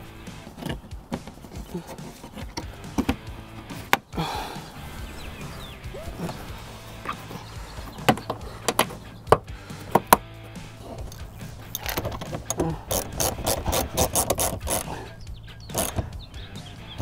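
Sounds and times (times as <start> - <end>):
hand ratchet clicking rapidly: 11.0 - 16.3.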